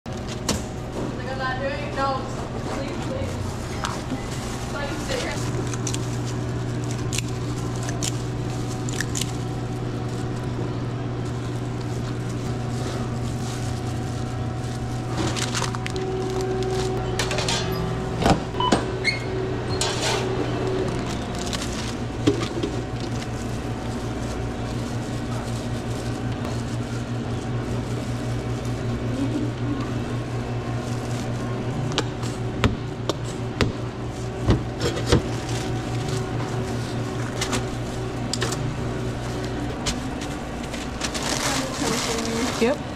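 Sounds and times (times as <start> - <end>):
low hum of kitchen equipment: 0.1 - 42.9
oven clunks and knocks: 17.1 - 19.1.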